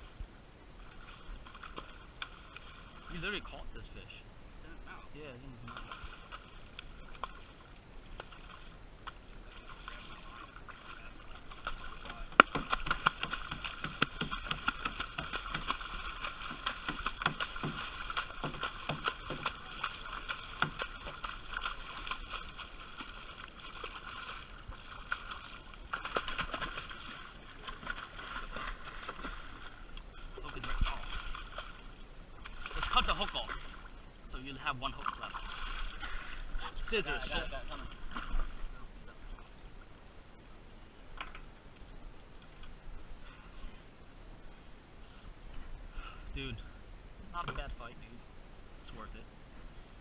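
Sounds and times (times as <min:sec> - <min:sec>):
fish splashing at water surface: 0:09.4 - 0:33.9.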